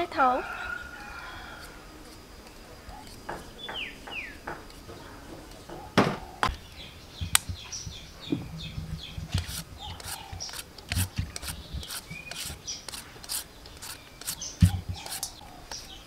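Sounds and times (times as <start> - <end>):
small bird chirping: 0.0 - 16.0
sharp knocks: 3.2 - 6.6, 7.2 - 12.4, 14.6 - 15.3
knife scraping carrot: 7.2 - 16.0.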